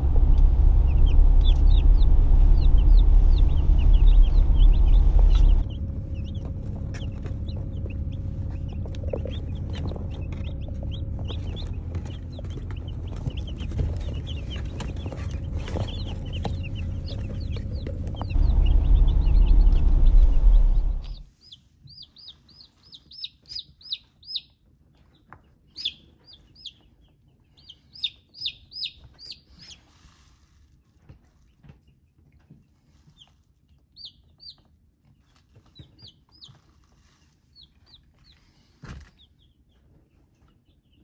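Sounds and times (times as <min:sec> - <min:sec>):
heavy low rumble: 0:00.0 - 0:21.3
chicks peeping: 0:00.0 - 0:41.0.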